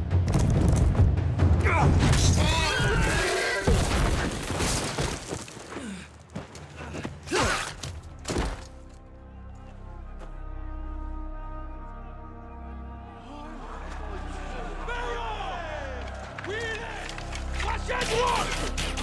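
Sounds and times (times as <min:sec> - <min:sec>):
low sustained music notes: 0:08.9 - 0:16.1.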